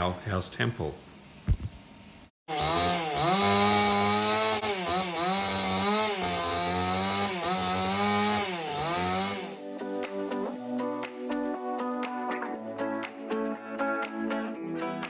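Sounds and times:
chainsaw cutting bamboo: 2.5s - 9.6s.

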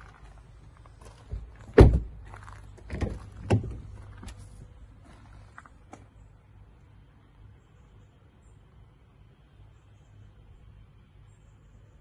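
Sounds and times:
car door thudding: 1.3s - 2.2s, 2.9s - 3.9s.

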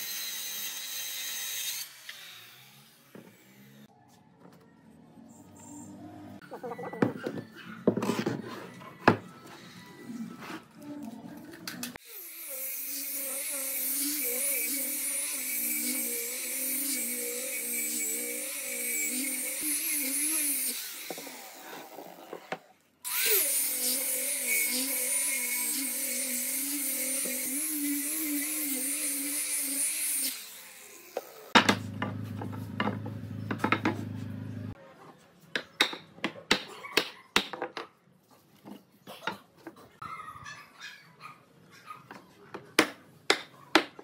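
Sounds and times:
angle grinder sanding wood: 11.9s - 22.0s, 23.1s - 34.8s.

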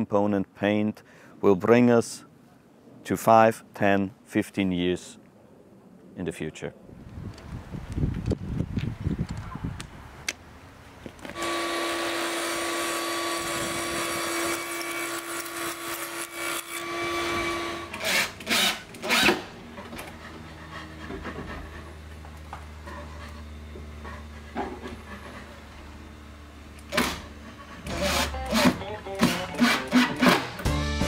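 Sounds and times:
saw cutting wood: 11.3s - 26.0s, 26.8s - 30.7s
table saw whining: 11.4s - 20.6s, 21.4s - 30.7s.

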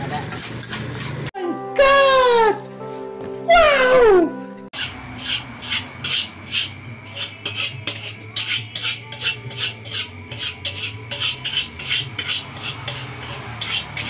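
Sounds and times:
metal spatula scraping a wok: 4.7s - 14.0s.

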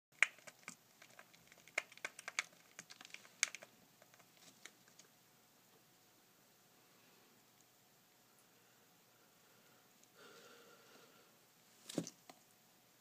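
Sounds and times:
rat teeth gnawing hard plastic: 0.2s - 5.1s.

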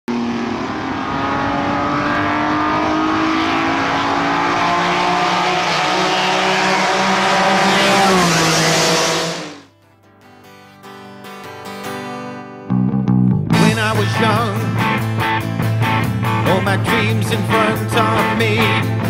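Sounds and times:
race car engine revving: 0.1s - 9.7s, 13.6s - 19.0s
faint guitar: 9.6s - 19.0s.

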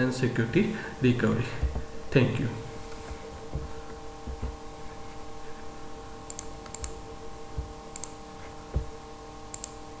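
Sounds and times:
faint electrical hum: 0.0s - 10.0s
soft low thumps: 1.4s - 6.0s, 7.0s - 9.1s
computer mouse clicking: 6.3s - 7.0s, 8.0s - 8.2s, 9.5s - 9.8s.

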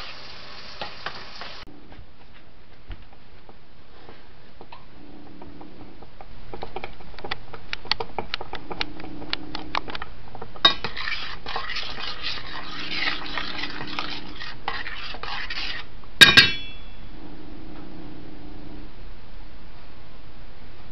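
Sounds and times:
spoon scraping saucepan: 10.6s - 17.0s
spoon clanging against pan: 16.2s - 16.9s.

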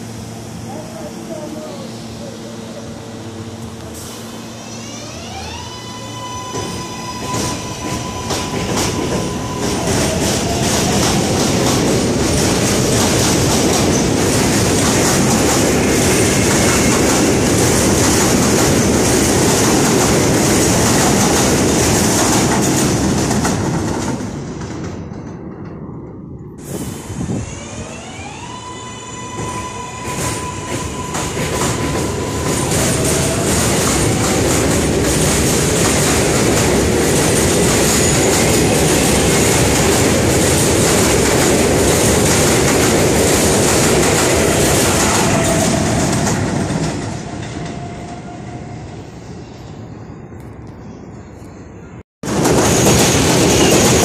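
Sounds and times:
train wheels rumbling on rails: 0.0s - 50.8s, 52.2s - 54.0s
train electric motor whine: 0.1s - 11.5s, 27.0s - 34.8s.

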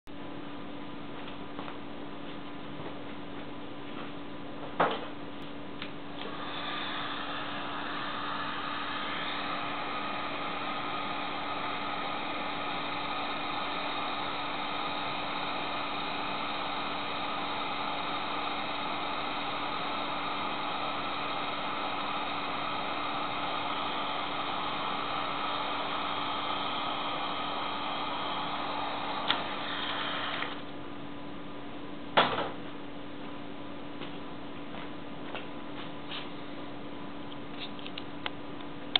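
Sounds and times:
heat gun blowing hiss: 6.2s - 30.7s.

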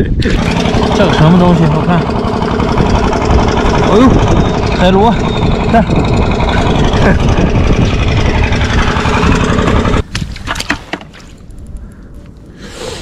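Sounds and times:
wind buffeting microphone: 0.0s - 10.5s
faint clicks: 11.4s - 12.6s.

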